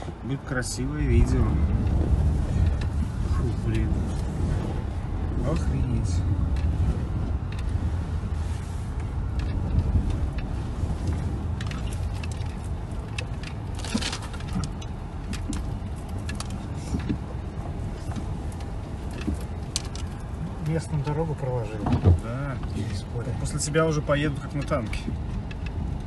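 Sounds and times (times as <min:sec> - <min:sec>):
car engine rumble: 0:00.0 - 0:26.0.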